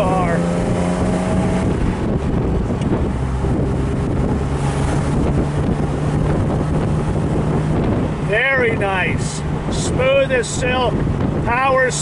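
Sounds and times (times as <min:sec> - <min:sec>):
car engine running: 0:00.0 - 0:12.0
wind on microphone: 0:00.0 - 0:12.0.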